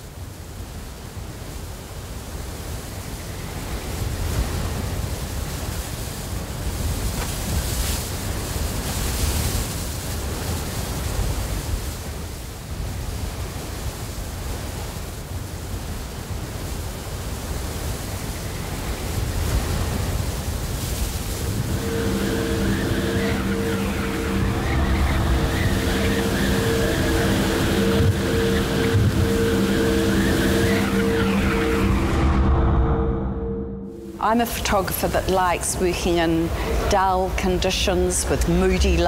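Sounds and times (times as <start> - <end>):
steady rushing noise: 17.2 - 39.0.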